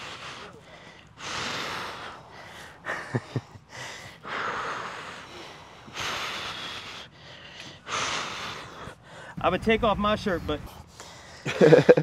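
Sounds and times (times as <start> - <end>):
person breathing heavily: 0.0 - 9.4, 10.6 - 12.0.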